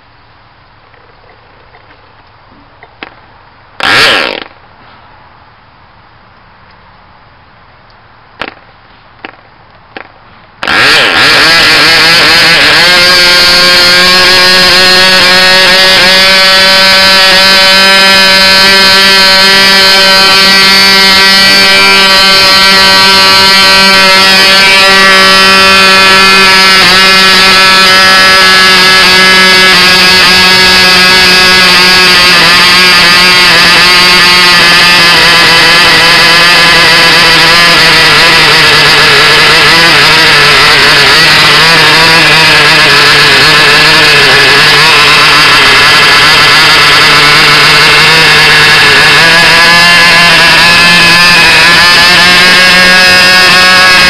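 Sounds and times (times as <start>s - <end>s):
model aircraft engine buzzing: 3.8s - 4.6s, 10.0s - 54.0s.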